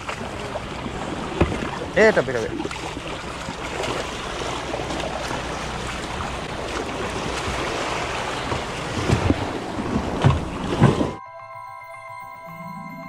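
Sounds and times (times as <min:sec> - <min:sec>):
moving water: 0:00.0 - 0:11.2
low boat rumble: 0:00.0 - 0:12.5.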